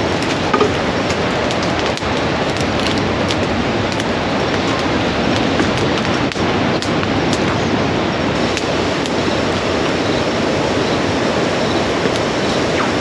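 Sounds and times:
campfire crackling: 0.0s - 13.0s.

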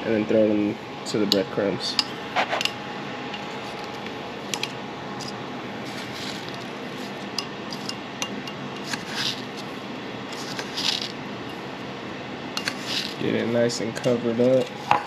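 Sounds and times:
steady background hiss: 0.0s - 15.0s
gritty breadcrumb swishes: 5.8s - 7.2s, 8.9s - 9.6s, 10.3s - 11.2s, 12.7s - 13.2s.

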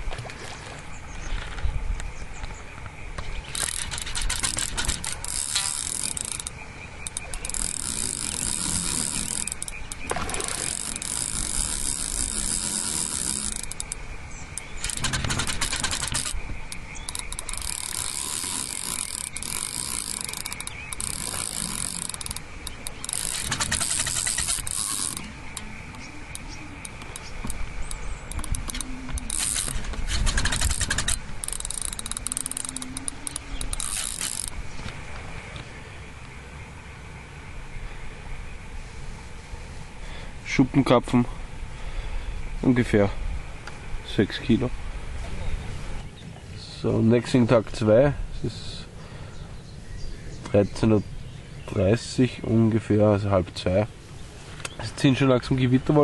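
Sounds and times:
fishing reel whirring and clicking: 3.5s - 34.6s.

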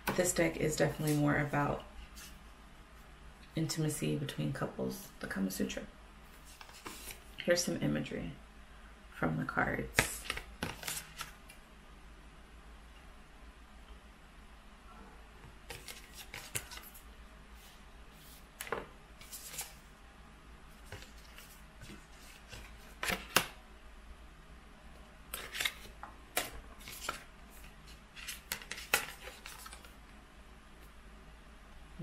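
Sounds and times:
cards being flipped: 6.4s - 7.2s, 10.0s - 11.5s, 15.7s - 17.0s, 18.2s - 19.8s, 20.9s - 23.6s, 25.3s - 29.9s.

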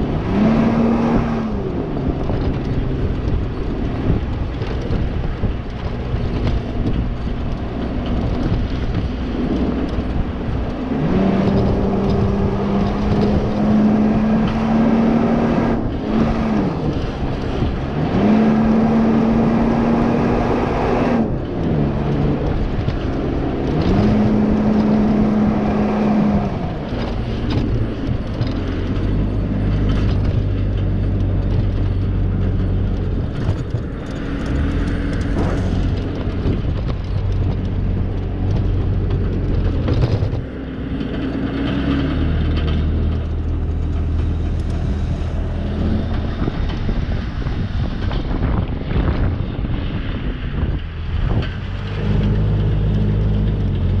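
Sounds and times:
steady rushing noise: 0.0s - 54.0s
vehicle engine working hard: 0.0s - 54.0s.

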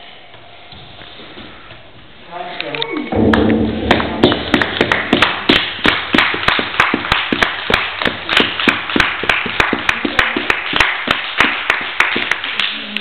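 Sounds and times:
group clapping in rhythm: 3.2s - 13.0s
loose applause: 3.2s - 13.0s.

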